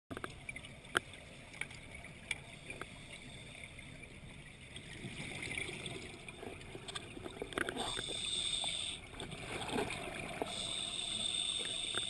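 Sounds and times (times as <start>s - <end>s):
faint underwater hiss: 7.7s - 9.3s, 10.2s - 12.0s.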